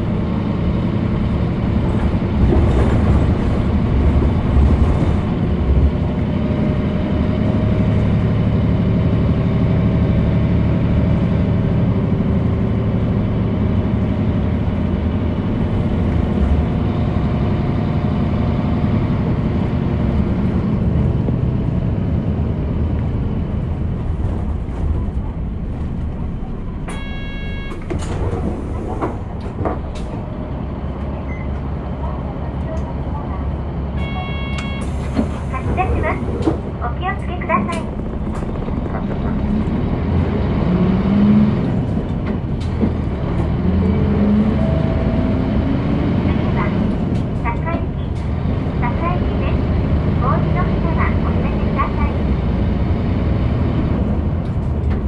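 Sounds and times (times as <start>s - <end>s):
bus engine humming: 0.0s - 55.0s
short electronic tone: 26.9s - 27.8s, 34.0s - 34.9s.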